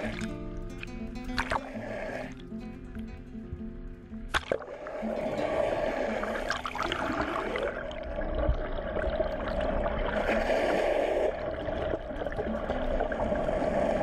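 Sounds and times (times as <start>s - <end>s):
water rushing and splashing underwater: 0.0s - 3.6s, 4.2s - 14.0s.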